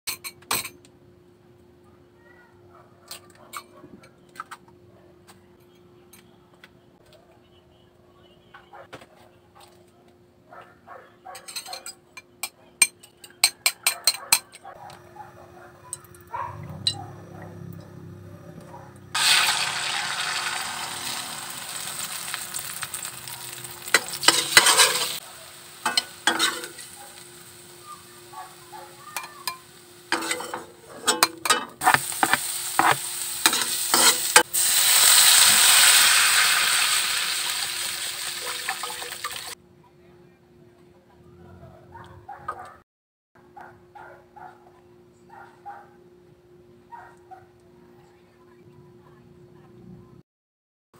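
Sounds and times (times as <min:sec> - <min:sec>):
egg sizzling in hot oil: 0:19.1 - 0:30.6, 0:31.8 - 0:39.6
garlic sizzling in oil: 0:19.2 - 0:30.7, 0:31.8 - 0:39.6
spatula clinking and scraping: 0:21.7 - 0:25.2, 0:25.8 - 0:27.2, 0:29.1 - 0:34.5
fork beating eggs in bowl: 0:30.2 - 0:34.2.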